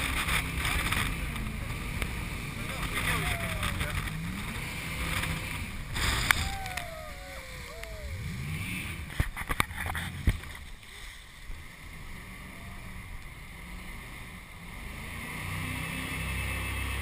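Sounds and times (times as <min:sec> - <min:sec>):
boat engine revving: 0:00.0 - 0:09.3
water rushing along hull: 0:00.0 - 0:17.0.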